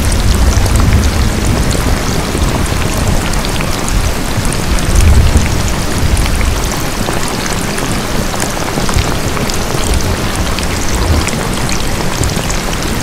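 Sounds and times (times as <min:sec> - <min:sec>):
low rumble: 0:00.0 - 0:06.7
steady rain: 0:00.0 - 0:13.0.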